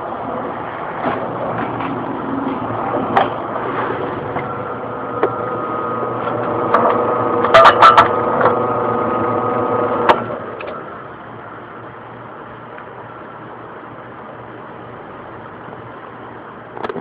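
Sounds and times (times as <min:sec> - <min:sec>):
drill press drilling: 0:05.2 - 0:10.4.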